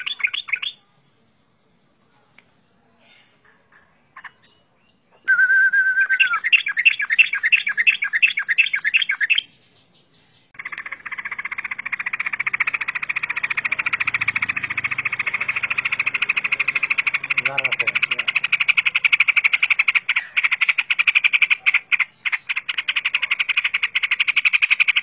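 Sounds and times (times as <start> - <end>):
bird chattering notes: 0.0 - 0.9, 6.0 - 25.0
fast rattling trill: 10.6 - 25.0.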